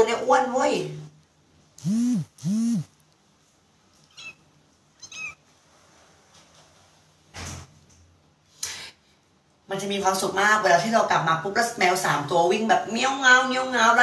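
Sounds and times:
cat meowing: 4.0s - 4.4s, 5.0s - 5.4s
kitten mews: 4.1s - 4.4s, 5.0s - 5.4s.

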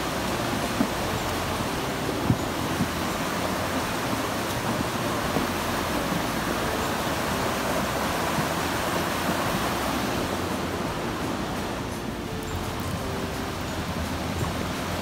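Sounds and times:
river rushing: 0.0s - 15.0s.

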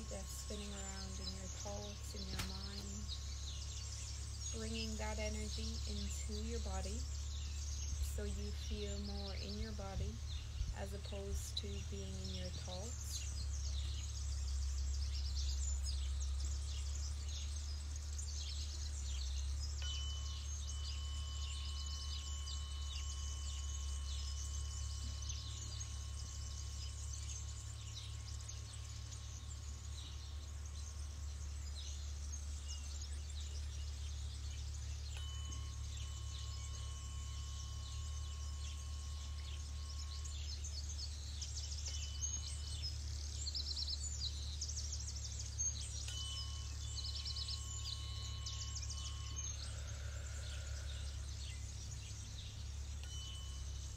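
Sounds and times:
steady low rumble: 0.0s - 19.9s
birds chirping: 0.0s - 53.9s
tuning fork ringing: 13.2s - 53.9s.

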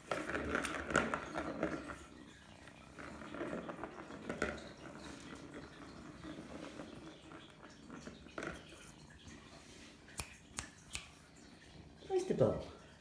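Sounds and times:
kittens playing with toys: 0.0s - 9.9s.

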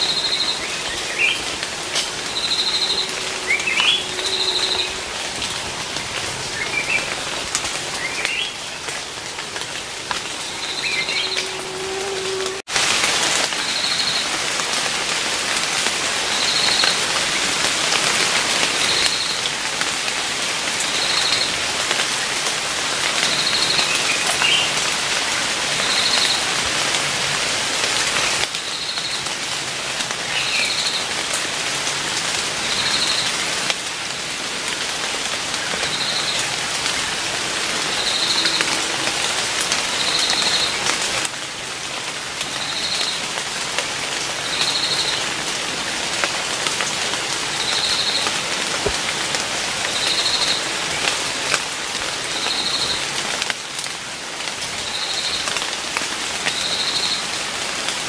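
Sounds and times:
high trilled call: 0.0s - 5.6s, 10.3s - 12.6s, 37.4s - 40.8s.

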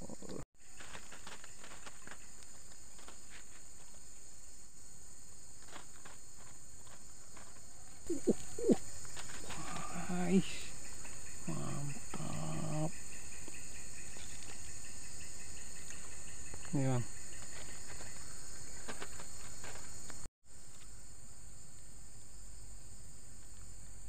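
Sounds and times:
insects chorus: 0.0s - 24.0s.

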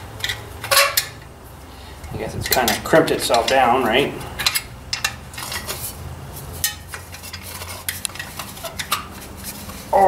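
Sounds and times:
metal clinks and scrapes: 2.4s - 10.0s.

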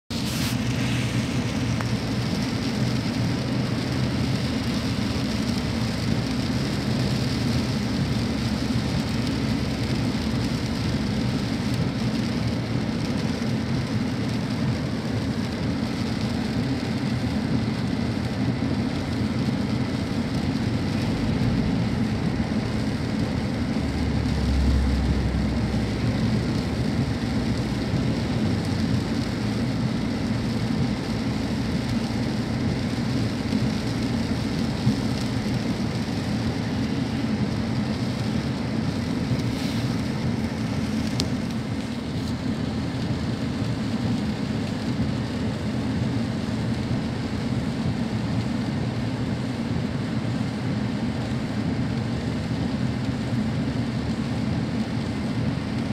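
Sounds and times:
engine and tyre rumble: 0.0s - 55.9s
rain and spray hissing: 0.1s - 55.9s
deeper rumble: 20.0s - 31.2s.

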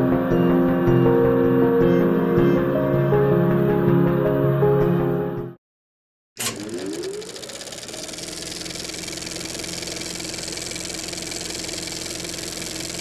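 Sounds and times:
motor-like mechanical hum: 6.4s - 13.0s.

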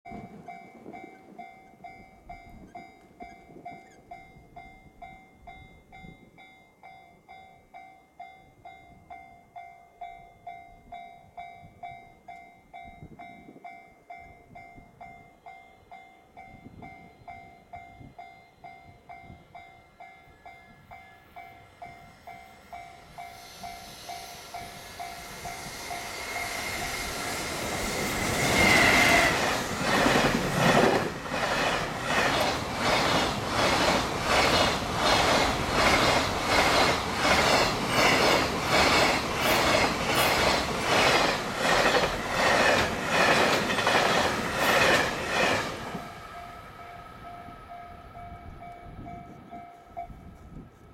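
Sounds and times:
level crossing warning bell: 0.1s - 50.5s
freight train rumble: 16.4s - 50.9s.

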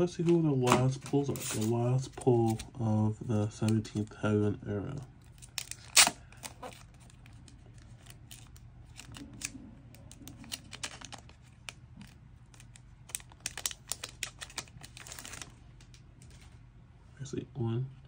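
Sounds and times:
plastic wrap crinkling: 5.2s - 16.5s
card and packaging clicks: 5.3s - 16.0s.

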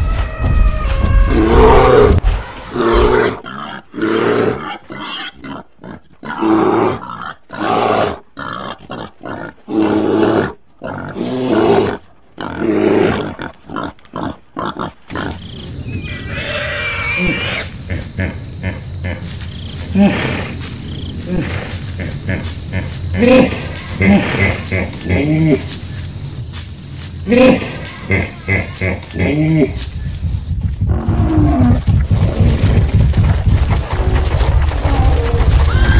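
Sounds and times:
animal growls and roars: 0.0s - 18.8s, 30.7s - 35.9s.

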